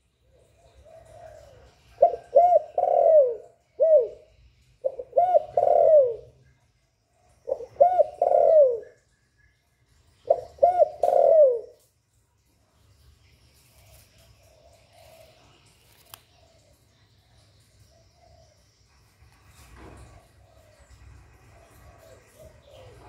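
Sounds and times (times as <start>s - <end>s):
dove cooing: 0.3s - 6.4s, 7.4s - 9.0s, 10.2s - 11.8s, 14.5s - 15.5s, 20.0s - 23.0s.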